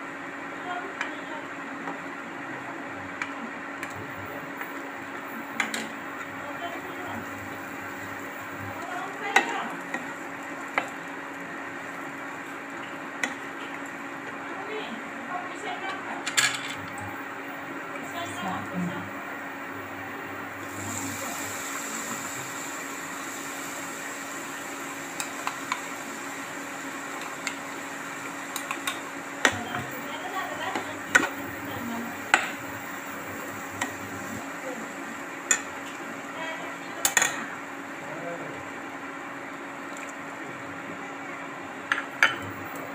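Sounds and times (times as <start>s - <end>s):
constant hum: 0.0s - 42.9s
onions sizzling in oil: 3.7s - 15.3s, 17.2s - 38.0s.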